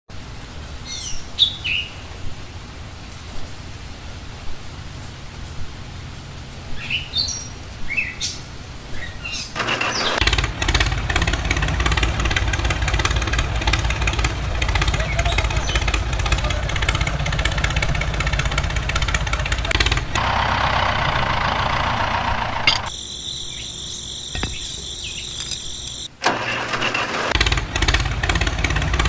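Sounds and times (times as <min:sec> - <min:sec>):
birds chirping: 0:00.8 - 0:02.3, 0:06.6 - 0:26.2.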